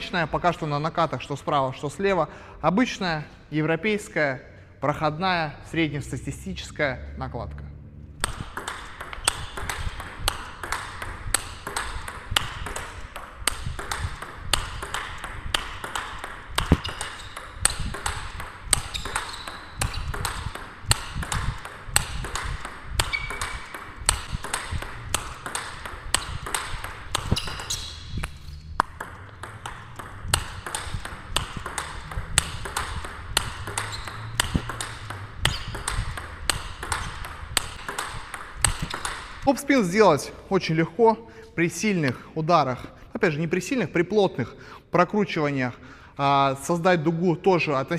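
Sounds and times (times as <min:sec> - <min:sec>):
ping pong ball bouncing on table: 0:08.2 - 0:39.5
ping pong ball hitting rackets: 0:08.2 - 0:40.1.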